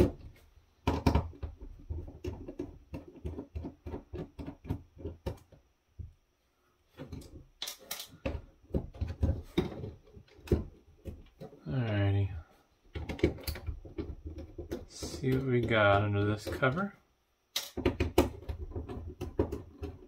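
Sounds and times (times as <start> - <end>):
clicks and taps on plastic case: 0.8 - 5.6, 12.9 - 16.8, 17.6 - 20.0.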